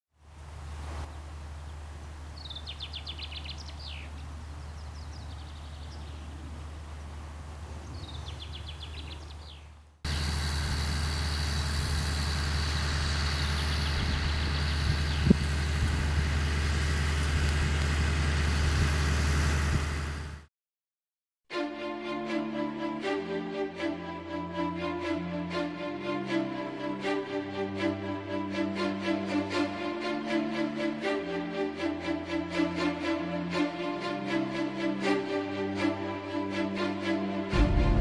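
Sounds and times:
small birds chirping: 0.6 - 10.3, 12.8 - 15.5
tractor diesel engine running: 10.1 - 20.5, 37.5 - 38.0.

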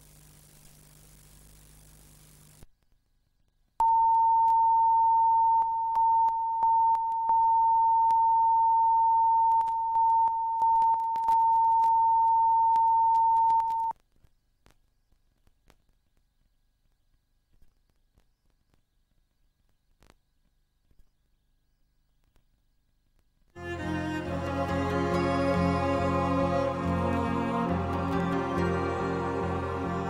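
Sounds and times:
steady test tone beep: 3.8 - 13.9.

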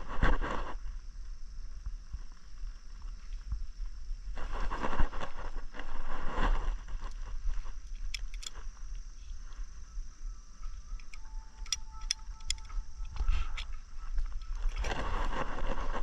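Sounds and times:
wind rumble on microphone: 0.0 - 16.0
rustling in grass: 2.0 - 9.8, 10.6 - 16.0
fibre cleaver clicks: 11.0 - 12.8.

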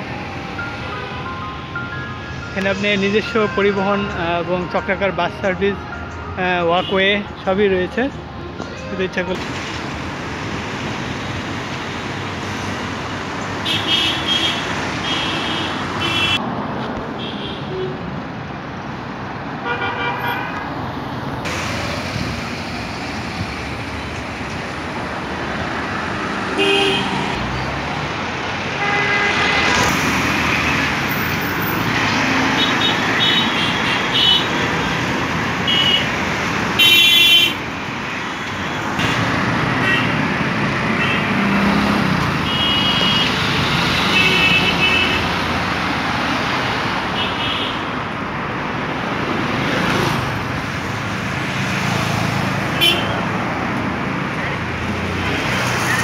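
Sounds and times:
passing cars and auto-rickshaws: 0.0 - 56.0
vehicle horns honking: 13.6 - 16.4, 17.2 - 18.0, 19.6 - 20.6, 26.6 - 27.2, 28.8 - 29.9, 32.5 - 34.9, 35.6 - 36.1, 36.8 - 37.6, 38.2 - 40.2, 40.9 - 41.7, 42.4 - 43.4, 44.0 - 45.3, 52.8 - 53.3.

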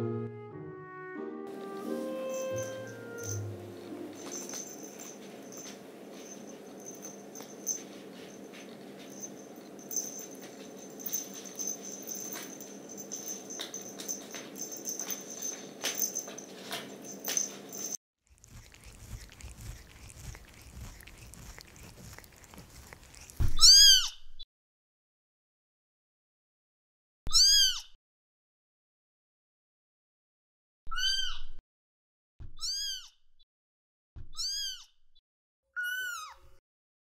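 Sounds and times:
cat meowing high: 27.3 - 27.9, 30.9 - 31.5, 32.6 - 33.1, 34.4 - 34.9, 35.8 - 36.4.

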